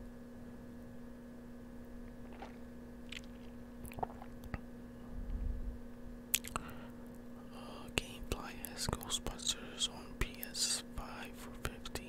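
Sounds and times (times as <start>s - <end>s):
faint steady hum: 0.0s - 12.0s
brief low rumble: 5.0s - 5.9s.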